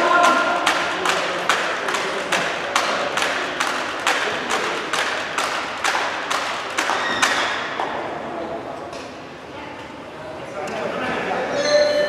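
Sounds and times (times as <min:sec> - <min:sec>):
spectators clapping rhythmically: 0:00.0 - 0:07.9.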